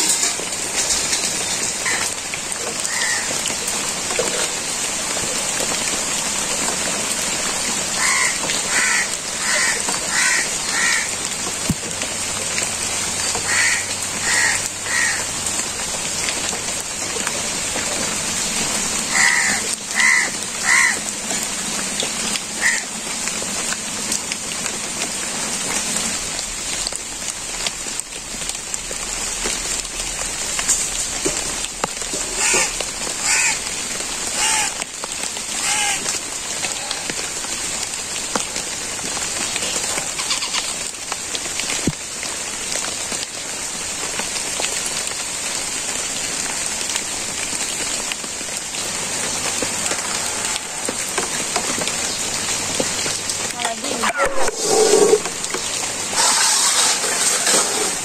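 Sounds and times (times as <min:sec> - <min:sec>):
steady rain: 0:00.0 - 0:58.0
crow cawing: 0:02.9 - 0:03.3, 0:08.0 - 0:11.1, 0:13.4 - 0:15.3, 0:19.1 - 0:21.0, 0:22.6 - 0:22.9, 0:32.4 - 0:33.6, 0:34.4 - 0:34.8, 0:35.6 - 0:36.0.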